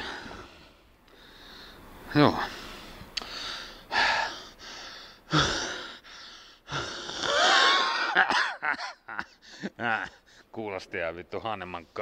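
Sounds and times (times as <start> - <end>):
man wheezing and gasping: 3.2 - 10.5.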